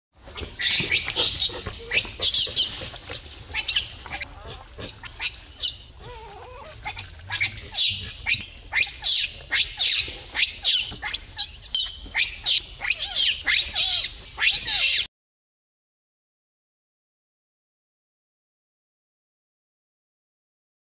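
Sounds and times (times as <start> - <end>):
baby monkey screaming: 0.6 - 15.1.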